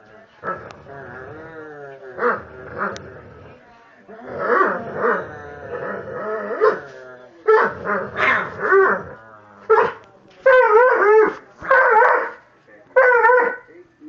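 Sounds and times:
dog growling: 0:00.4 - 0:09.6.

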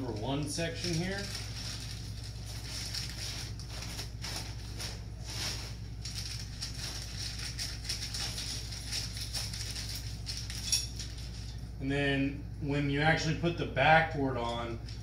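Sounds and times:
steady low hum: 0:00.0 - 0:15.0
netting rustling: 0:00.2 - 0:11.4.

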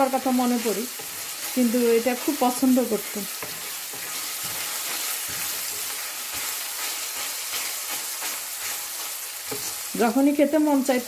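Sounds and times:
onions sizzling in hot oil: 0:00.0 - 0:11.0
wooden spatula scraping pan: 0:00.5 - 0:10.1.

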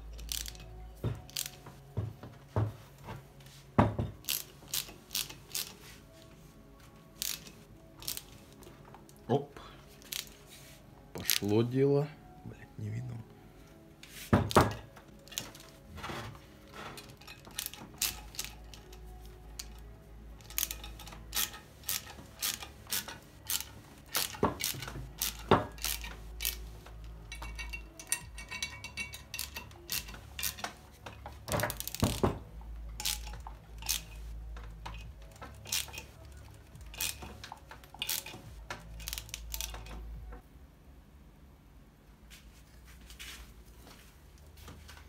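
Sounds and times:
ratcheting screwdriver clicking: 0:07.2 - 0:08.2, 0:20.4 - 0:26.6, 0:33.0 - 0:34.2, 0:34.9 - 0:39.9
metal clinks: 0:19.6 - 0:32.2.

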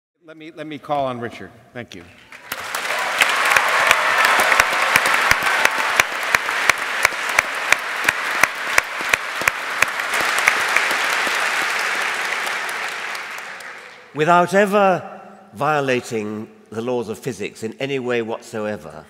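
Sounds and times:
sharp close claps: 0:02.3 - 0:14.0
audience applauding: 0:02.3 - 0:14.2.

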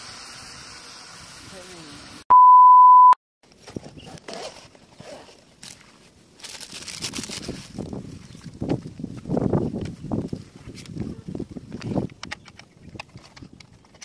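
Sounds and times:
loud electronic beep: 0:02.3 - 0:03.2
plastic rustling: 0:03.5 - 0:08.6.

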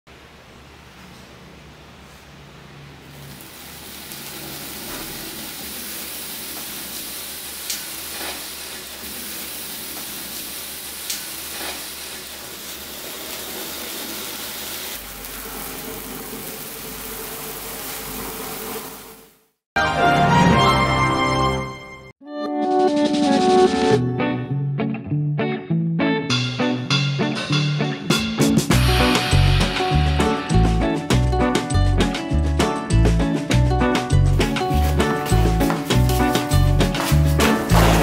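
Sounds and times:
firework fountains hissing: 0:03.1 - 0:19.6, 0:34.4 - 0:38.0
sharp pop: 0:37.6 - 0:38.0.

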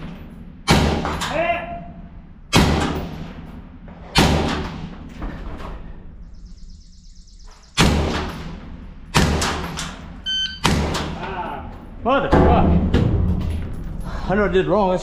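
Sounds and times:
rifle shots echoing in metal container: 0:00.0 - 0:05.1, 0:07.8 - 0:11.2.

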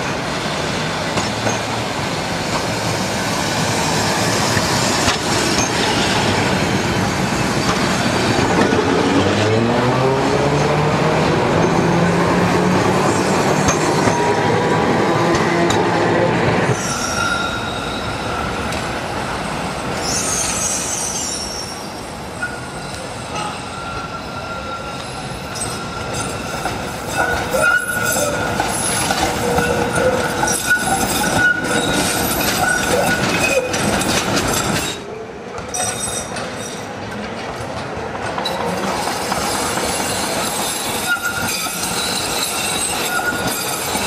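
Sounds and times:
steel wheels squealing: 0:16.7 - 0:18.5, 0:19.9 - 0:35.1, 0:35.7 - 0:36.9, 0:38.5 - 0:44.0
wheels clicking over rail joints: 0:26.6 - 0:35.0.

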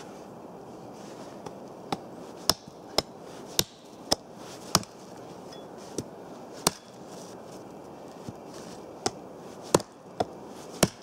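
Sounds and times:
hatchet chopping a branch: 0:01.4 - 0:05.0, 0:05.9 - 0:07.0, 0:09.0 - 0:11.0.

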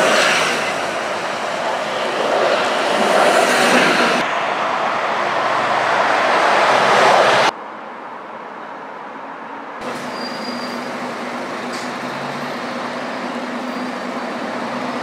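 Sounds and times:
street traffic: 0:00.0 - 0:15.0
bus engine approaching: 0:09.8 - 0:15.0.

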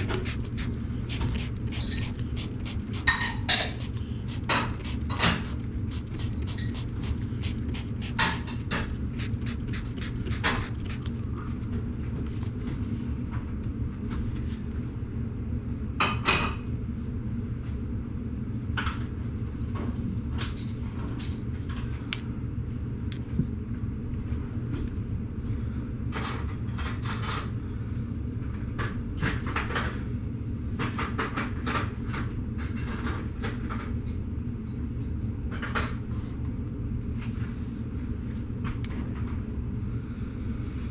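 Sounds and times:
sharp clicks and knocks: 0:00.0 - 0:11.2
low machine hum: 0:00.0 - 0:14.1.

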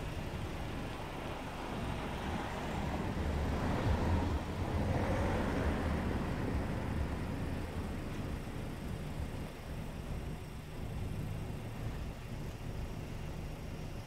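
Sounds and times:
low steady rumble: 0:00.0 - 0:14.0
vehicle driving past: 0:01.5 - 0:08.3.

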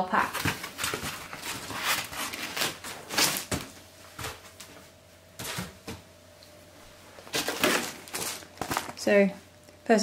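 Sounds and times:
foam and cardboard scraping: 0:00.3 - 0:03.6.

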